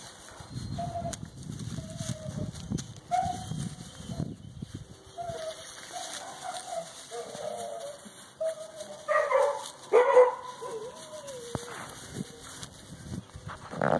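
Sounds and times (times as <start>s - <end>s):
puppy whining: 0.3s - 9.6s, 10.2s - 12.9s
puppy yelps: 0.7s - 4.2s, 5.1s - 12.7s.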